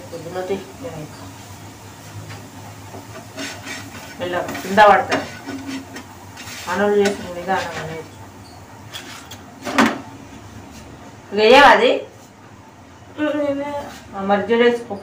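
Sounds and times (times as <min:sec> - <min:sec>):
light sizzle: 0:00.0 - 0:15.0
spatula scraping a frying pan: 0:02.2 - 0:08.2, 0:08.9 - 0:09.4.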